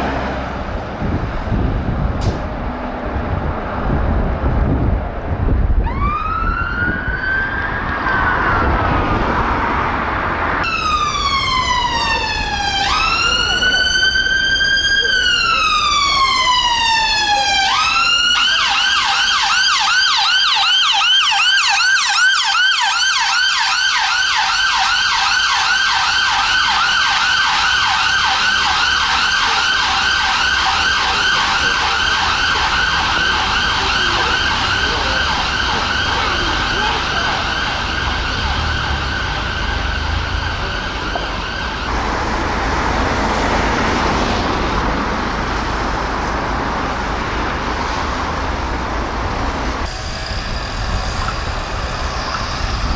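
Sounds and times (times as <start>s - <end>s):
road traffic noise: 0.0s - 52.9s
ambulance siren wailing and yelping: 5.8s - 9.1s, 10.6s - 41.9s.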